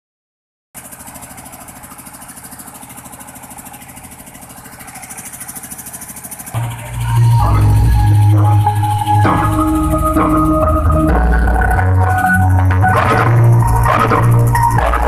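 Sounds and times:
engine idling: 0.8s - 15.0s
heavy bass music: 6.6s - 15.0s.

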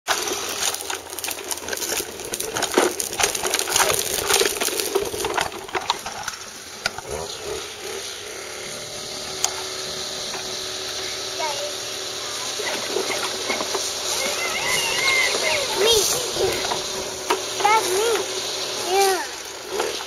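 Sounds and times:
plastic wheels rattling over bricks: 0.1s - 8.2s, 12.3s - 20.0s.

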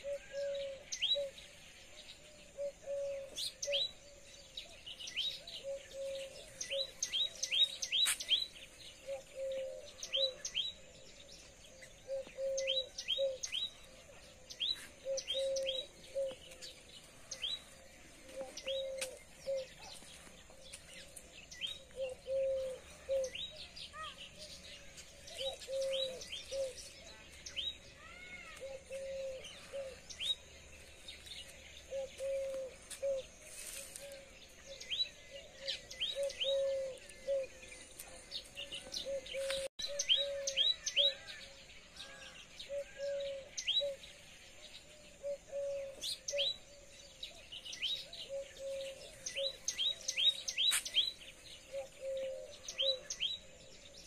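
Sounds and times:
birds chirping: 0.0s - 54.0s
lower bird call: 14.6s - 17.6s, 21.6s - 27.0s, 31.3s - 54.0s.

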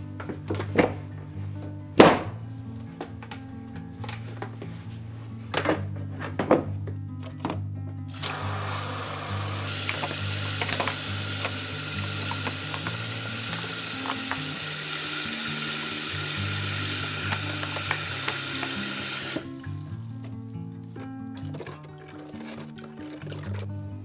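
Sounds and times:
tap running into basin of water: 8.1s - 23.8s.

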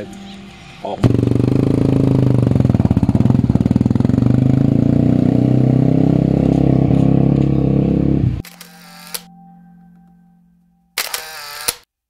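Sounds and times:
motorcycle engine running: 1.0s - 8.4s.

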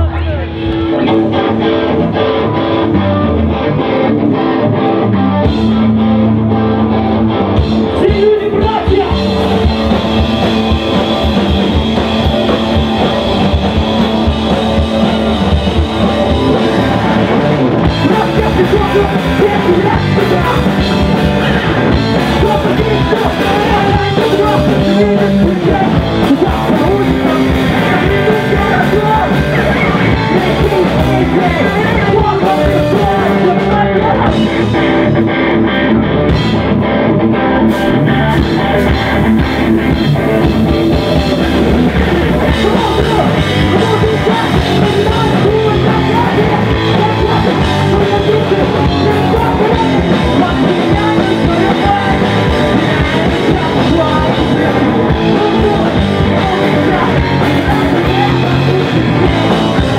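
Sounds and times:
bass guitar: 0.0s - 59.9s
drum kit: 0.0s - 59.9s
electric guitar: 0.0s - 59.9s
person singing into a microphone: 7.9s - 34.8s, 40.9s - 59.9s.

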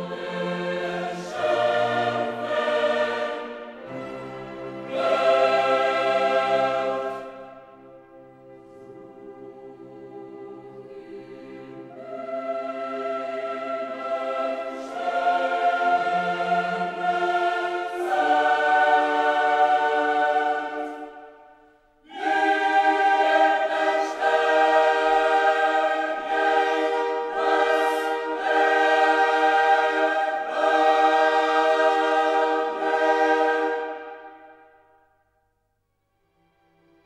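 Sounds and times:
choir singing held chords: 0.0s - 35.4s.

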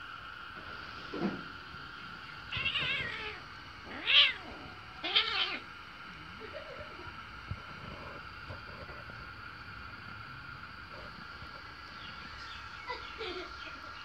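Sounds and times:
kittens play-fighting: 1.9s - 6.1s
kitten mewing: 2.5s - 5.7s.

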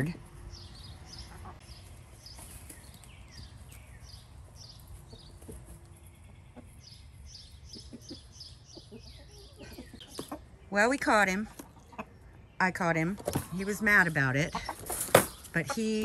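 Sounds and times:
chickens clucking: 0.4s - 16.0s
small bird chirping: 0.5s - 10.7s.

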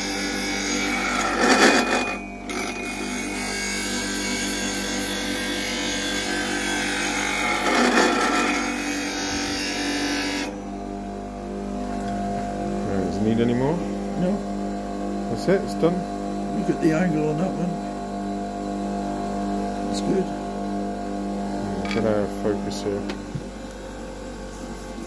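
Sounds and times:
bench grinder motor humming: 0.0s - 25.0s
steel grinding on wheel: 0.8s - 10.5s.

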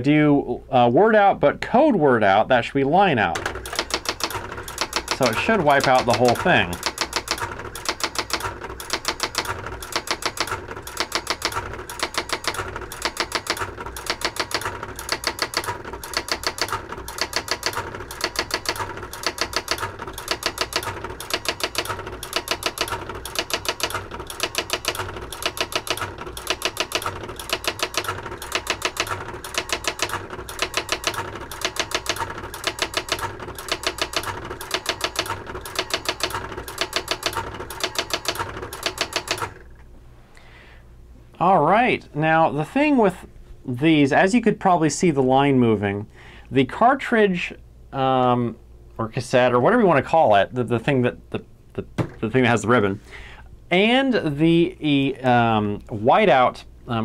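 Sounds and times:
typewriter clicking: 3.3s - 39.7s.

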